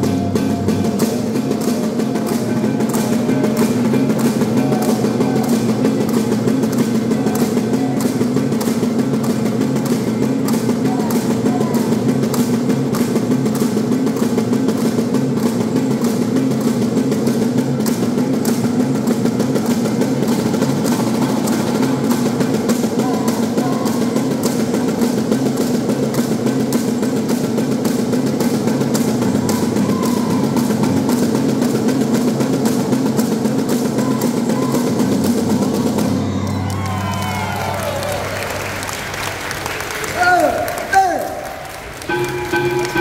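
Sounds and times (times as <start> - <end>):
gong ensemble held tones: 41.9 - 43.0.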